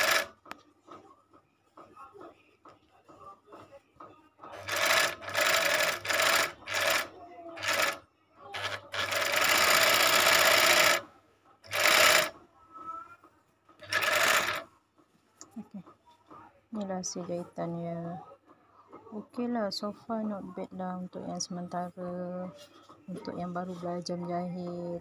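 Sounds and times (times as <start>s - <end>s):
overlock sewing machine running: 0.0s - 0.3s, 4.5s - 8.0s, 8.6s - 11.0s, 11.7s - 12.3s, 13.8s - 14.6s.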